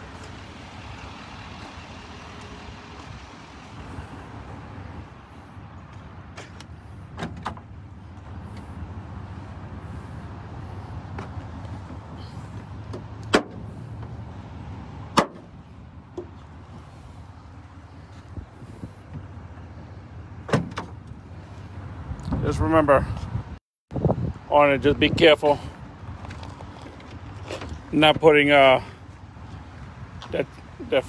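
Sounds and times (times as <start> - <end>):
low outdoor rumble: 0.0 - 31.0
tailgate hardware clicks and knocks: 6.4 - 7.7, 12.9 - 13.6, 15.1 - 15.5, 20.4 - 21.2.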